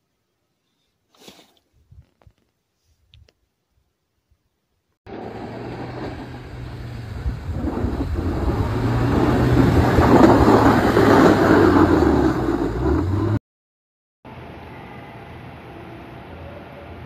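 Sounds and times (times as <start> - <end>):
snow scraping against plow blade: 5.1 - 13.4
truck engine humming: 5.1 - 13.4.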